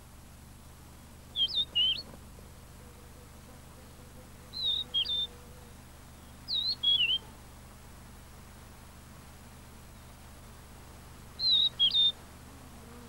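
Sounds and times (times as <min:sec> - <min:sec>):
bird whistling: 0:01.4 - 0:02.0, 0:04.6 - 0:05.3, 0:06.5 - 0:07.2, 0:11.4 - 0:12.2.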